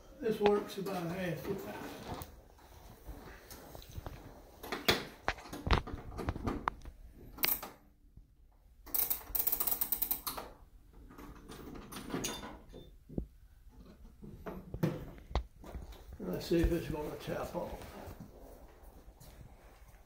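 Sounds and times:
rapid ratcheting clicks: 0:08.8 - 0:10.5
clockwork mechanism clicking: 0:08.9 - 0:10.5.

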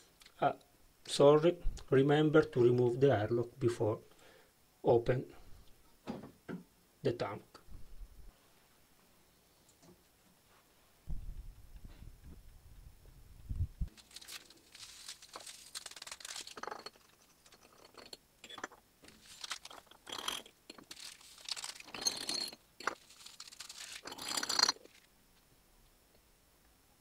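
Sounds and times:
paper sachets tearing and crinkling: 0:13.9 - 0:17.0, 0:19.1 - 0:19.9, 0:20.8 - 0:22.1, 0:22.9 - 0:25.1
sugar shaken through funnel: 0:13.9 - 0:18.1, 0:19.1 - 0:25.0.

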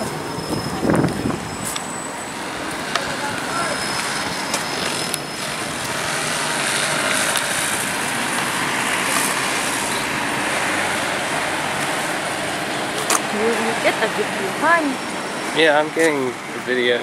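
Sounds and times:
steady rushing outdoor noise: 0:00.0 - 0:17.0.

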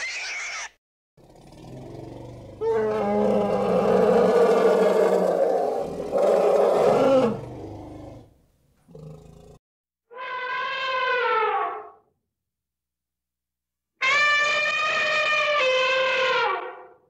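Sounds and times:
large animal low call: 0:01.2 - 0:08.2.

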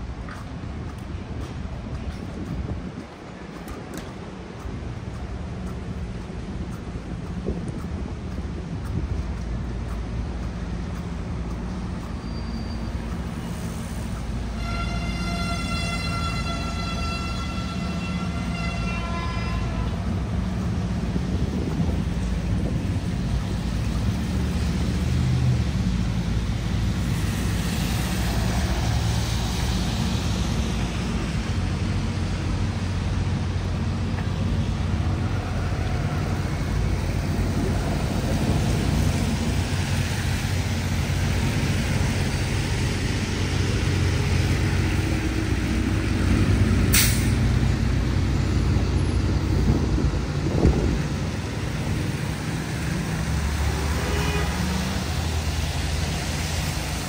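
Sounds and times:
traffic rumble: 0:00.0 - 0:57.0
brief high hiss: 0:46.9 - 0:47.4.

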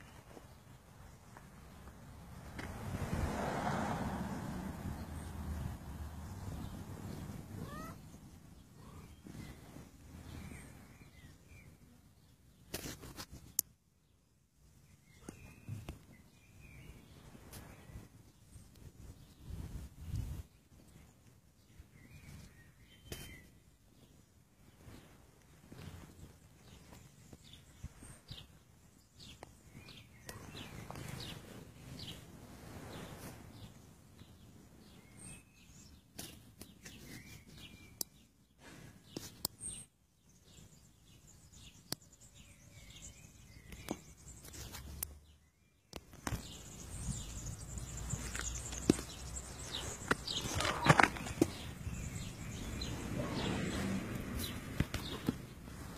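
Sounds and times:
faint bird chirps: 0:07.6 - 0:12.1, 0:14.9 - 0:18.1
camera rustling and knocks: 0:48.7 - 0:51.7.

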